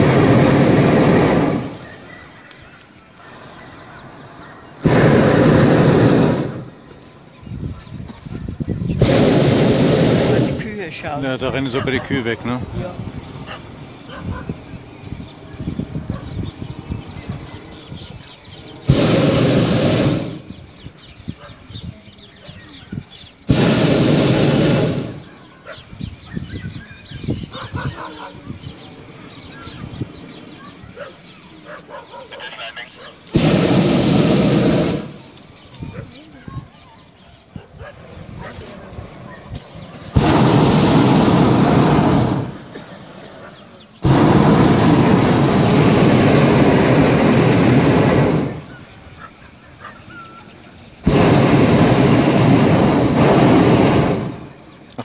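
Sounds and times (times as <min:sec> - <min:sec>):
propane burner blasts: 0:00.0 - 0:31.6, 0:32.4 - 0:49.3, 0:50.1 - 0:55.0
birds chirping: 0:00.0 - 0:55.0
low honking bird calls: 0:29.3 - 0:35.2.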